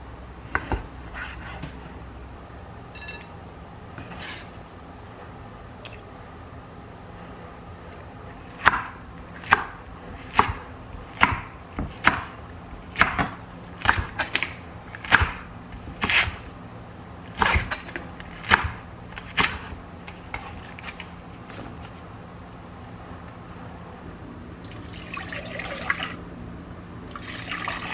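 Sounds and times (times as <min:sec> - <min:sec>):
knife chopping on cutting board: 0:08.5 - 0:16.4, 0:17.4 - 0:19.8.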